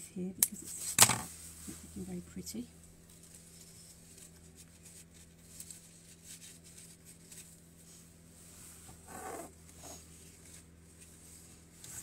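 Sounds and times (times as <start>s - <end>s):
steady low hum: 0.0s - 12.0s
leaves rustling: 3.0s - 8.8s.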